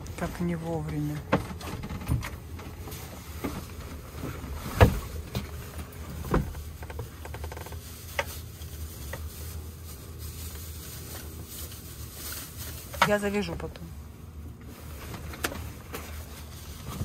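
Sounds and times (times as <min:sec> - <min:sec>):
knocks and thumps in wooden cabin: 0:00.2 - 0:08.3.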